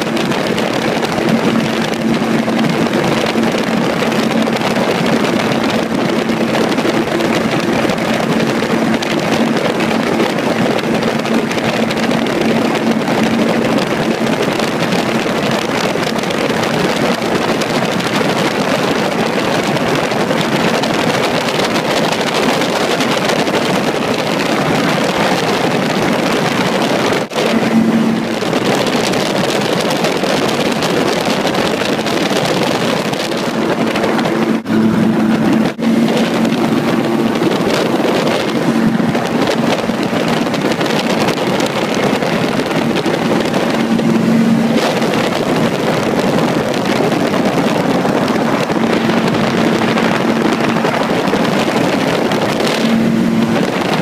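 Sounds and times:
gyrocopter engine drone: 0:00.0 - 0:54.0
wind rushing over microphone: 0:00.0 - 0:54.0
steady hum: 0:31.6 - 0:46.6.

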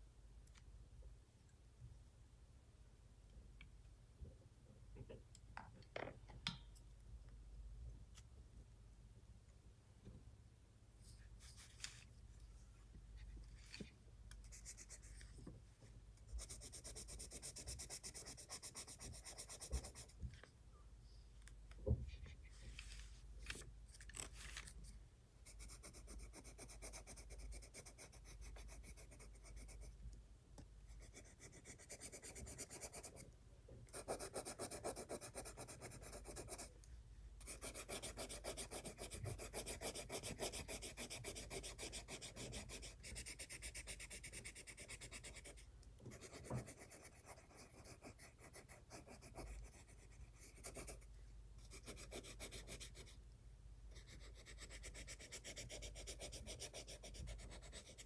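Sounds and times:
pencil scratching on paper: 0:16.4 - 0:20.2, 0:25.4 - 0:30.0, 0:30.9 - 0:33.2, 0:33.9 - 0:36.7, 0:37.4 - 0:53.2, 0:53.9 - 0:58.0.

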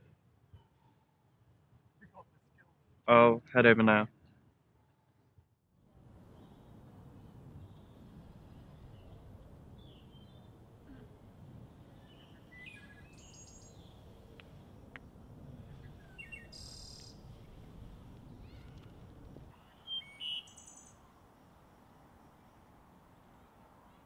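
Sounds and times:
small birds chirping: 0:07.6 - 0:10.6, 0:11.8 - 0:14.5, 0:15.6 - 0:17.6, 0:18.2 - 0:21.1
loud bird calls: 0:12.0 - 0:14.0, 0:19.5 - 0:21.0.

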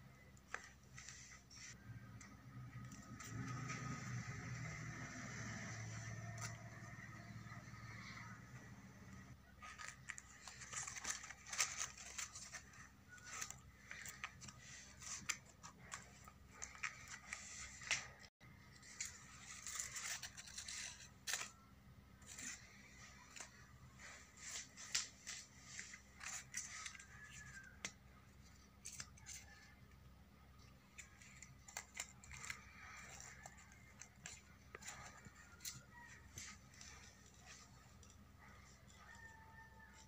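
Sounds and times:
paper rustling and crinkling: 0:09.4 - 0:29.8, 0:30.6 - 0:40.0.

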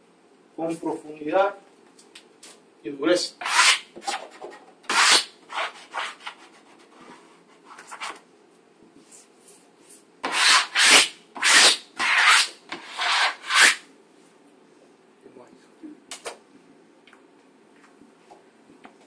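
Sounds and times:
sponge rubbing wallpaper: 0:03.4 - 0:08.1, 0:10.3 - 0:13.8.

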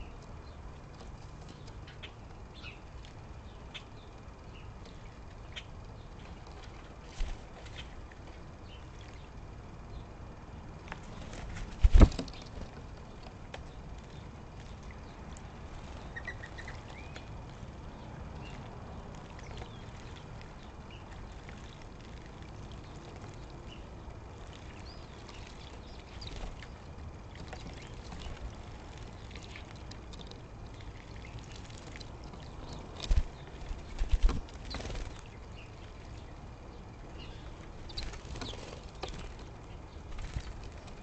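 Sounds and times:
birds splashing in water: 0:14.1 - 0:41.0.

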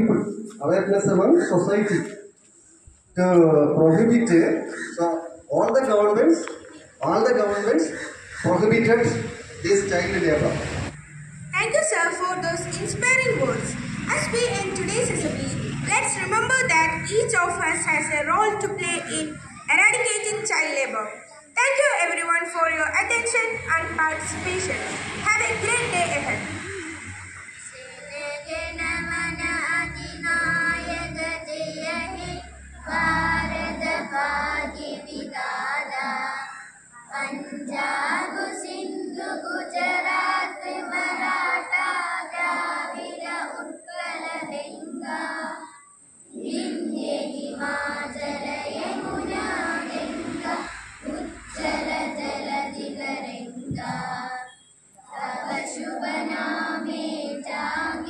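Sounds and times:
children singing in unison: 0:23.5 - 0:58.0.

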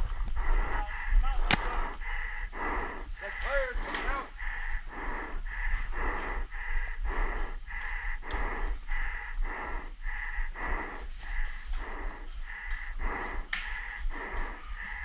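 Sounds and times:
person panting in a mask: 0:00.0 - 0:15.0.

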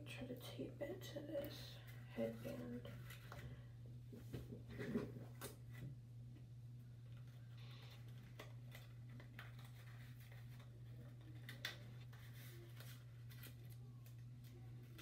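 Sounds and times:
steady low hum: 0:00.0 - 0:15.0
sticky tape crinkling: 0:07.0 - 0:15.0.

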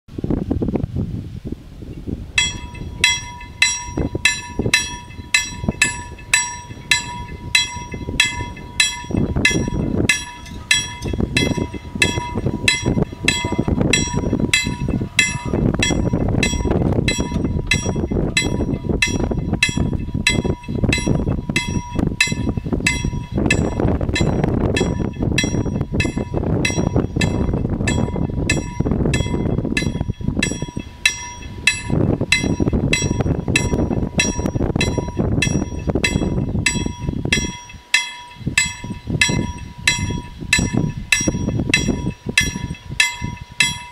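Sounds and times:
low rumbling noise: 0:00.1 - 0:43.9
level crossing warning bell: 0:02.4 - 0:43.9.

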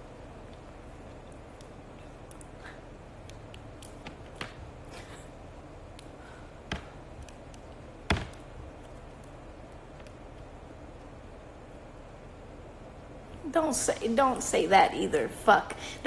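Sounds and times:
faint room noise: 0:00.0 - 0:16.0
nails clicking on small tube: 0:03.2 - 0:04.7, 0:05.9 - 0:10.5.

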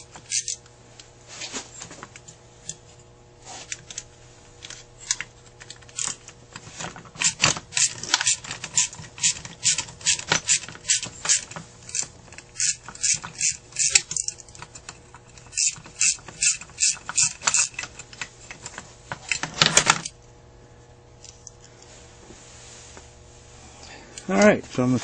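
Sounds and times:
metal parts clicking and scraping: 0:00.0 - 0:00.6, 0:03.6 - 0:20.2
steady low hum: 0:00.0 - 0:25.0.

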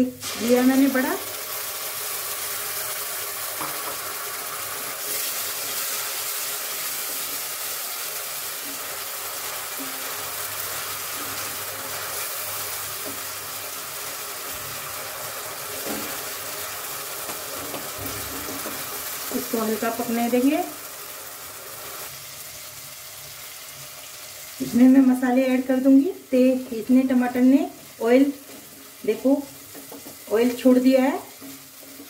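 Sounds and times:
vegetables sizzling in hot oil: 0:00.0 - 0:32.0
wooden spatula scraping pan: 0:31.3 - 0:32.0.

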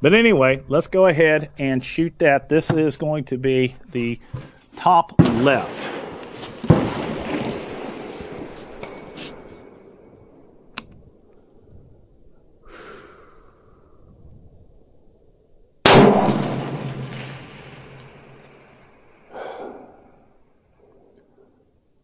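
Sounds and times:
rifle shot with echo: 0:05.2 - 0:09.0, 0:15.9 - 0:19.3.

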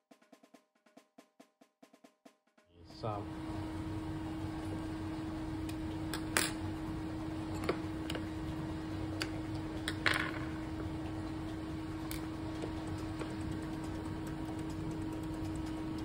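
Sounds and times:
steady low hum: 0:02.8 - 0:16.0.

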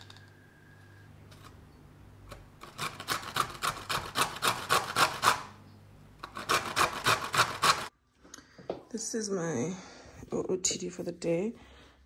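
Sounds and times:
carrot rasping on grater: 0:02.6 - 0:05.5, 0:06.2 - 0:07.9.

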